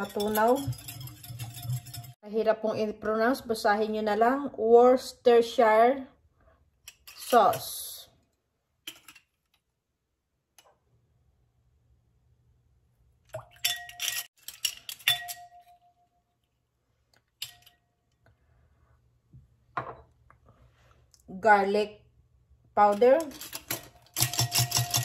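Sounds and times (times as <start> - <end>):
spoon clinking against glass bowl: 13.6 - 16.1.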